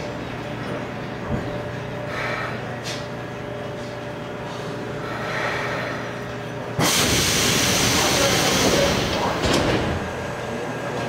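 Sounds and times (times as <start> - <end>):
subway car hum: 0.0 - 11.0
loud hiss: 6.8 - 9.2.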